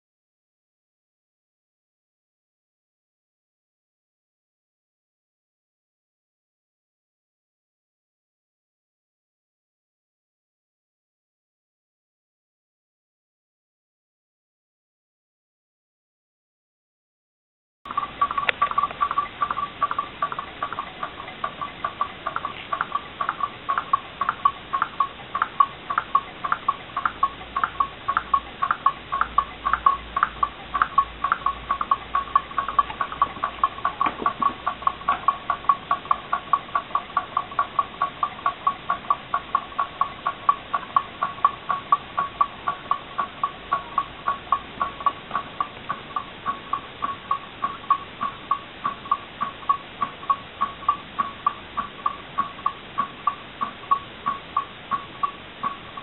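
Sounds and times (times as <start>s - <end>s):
stirling engine clicking: 17.9s - 56.0s.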